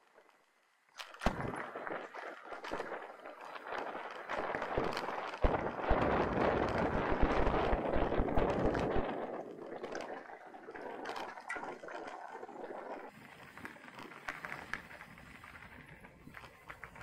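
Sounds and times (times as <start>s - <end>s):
bike rattling over rough ground: 0.0s - 17.0s
wind on microphone: 1.2s - 17.0s.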